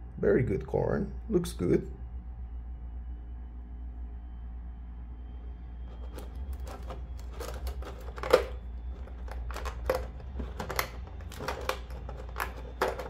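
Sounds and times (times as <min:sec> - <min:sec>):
plastic packaging crinkling: 0:05.9 - 0:13.0.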